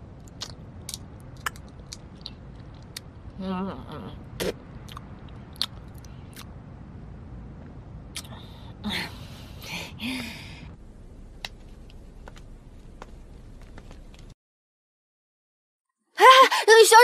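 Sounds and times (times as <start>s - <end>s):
steady low hiss: 4.2s - 14.3s.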